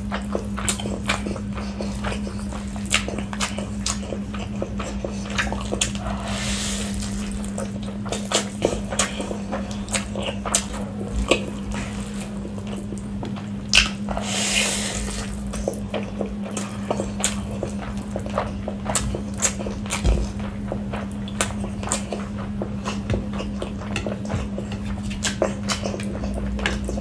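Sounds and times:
wet chewing and lip-smacking: 0:00.0 - 0:06.2, 0:06.8 - 0:27.0
steady low hum: 0:00.0 - 0:27.0
hand squeezing wet food: 0:13.8 - 0:15.8.

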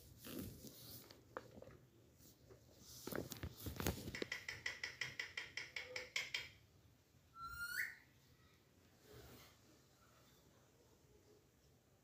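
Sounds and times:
bird rising whistle: 0:07.4 - 0:08.0.

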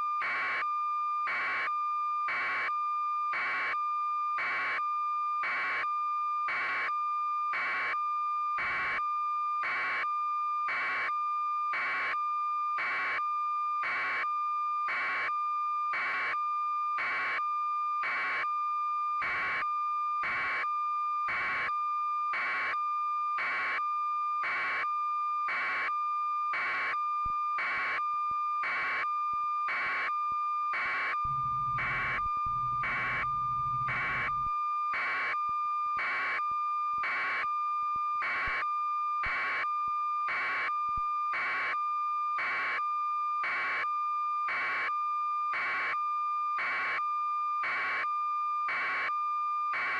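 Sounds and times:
pulsing high-pitched electronic tone: 0:31.3 - 0:34.5
short low hum: 0:31.3 - 0:34.5.

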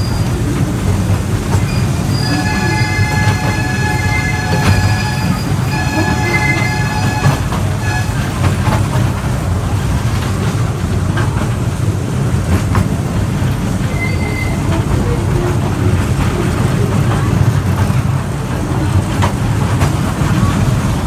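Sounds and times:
faint clicks from rails: 0:00.0 - 0:21.0
toy train rumbling on track: 0:00.0 - 0:21.0
high-pitched wheel squeal: 0:01.6 - 0:08.4, 0:13.9 - 0:14.7.

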